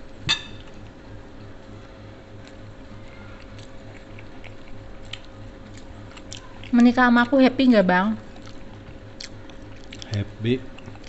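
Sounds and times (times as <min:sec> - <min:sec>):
steady low hum: 0:00.0 - 0:11.0
tableware clinking on plate: 0:00.3 - 0:00.7
fingers working food: 0:02.3 - 0:11.0
chewing: 0:02.4 - 0:07.4, 0:08.2 - 0:11.0.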